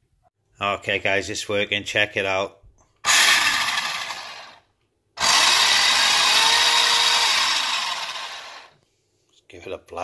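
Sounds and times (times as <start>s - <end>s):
toy car motor and gearbox spinning: 3.1s - 4.6s, 5.2s - 8.7s.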